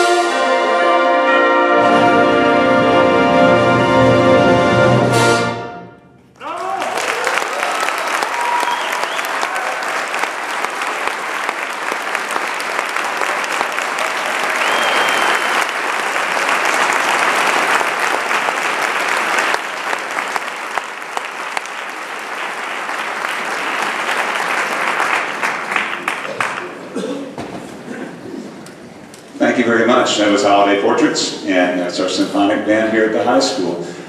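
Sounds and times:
audience applauding: 6.4 - 27.1.

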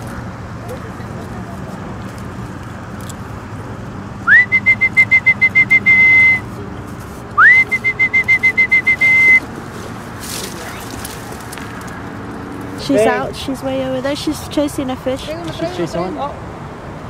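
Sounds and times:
high whistled call with trill: 4.2 - 6.5, 7.4 - 9.5.

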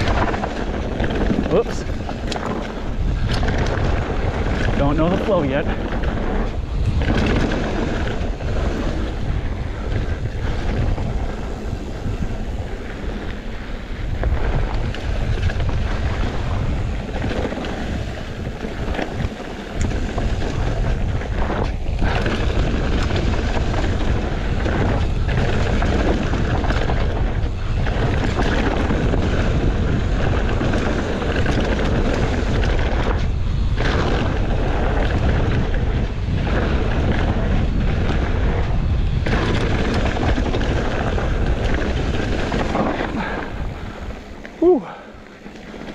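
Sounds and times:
bike tyres rumbling on trail: 0.0 - 45.9
wind rushing over microphone: 0.0 - 45.9
bike knocking over bumps: 5.7 - 11.3.

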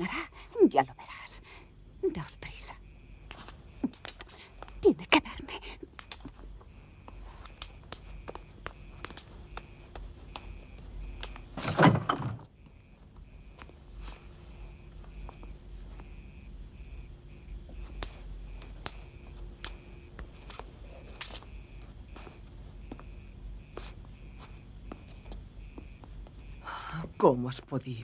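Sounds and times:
crickets chirping: 0.0 - 28.0
footsteps: 5.7 - 11.9, 12.5 - 26.6
banging on wooden door: 11.6 - 12.5.

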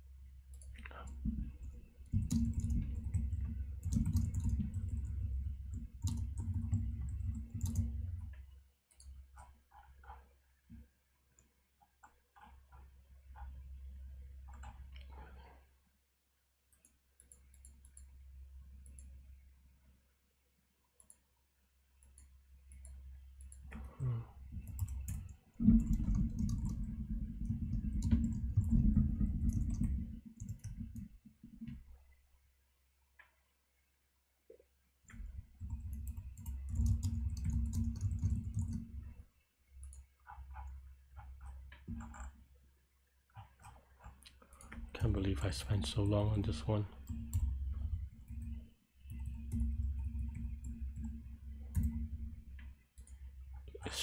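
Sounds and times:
typing on keyboard: 1.6 - 8.2, 22.7 - 31.1, 35.1 - 39.0, 39.8 - 42.4, 43.4 - 52.2.

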